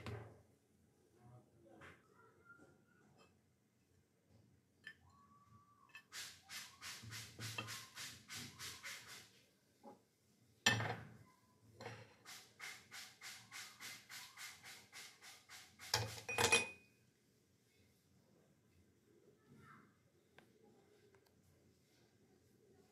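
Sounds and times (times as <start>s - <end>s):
rhythmic scraping strokes: 6.0s - 9.3s, 12.2s - 16.2s.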